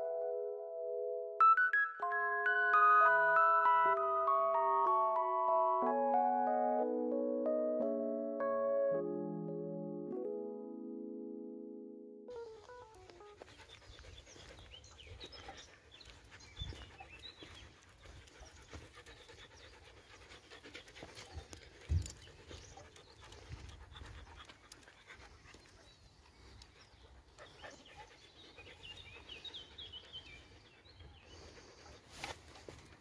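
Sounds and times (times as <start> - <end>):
dog panting: 12.4 - 33.0.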